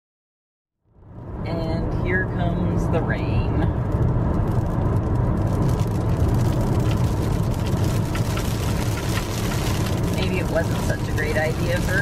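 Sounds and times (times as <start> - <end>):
car cabin road rumble: 1.0 - 12.0
raindrops tapping on windshield: 3.7 - 12.0.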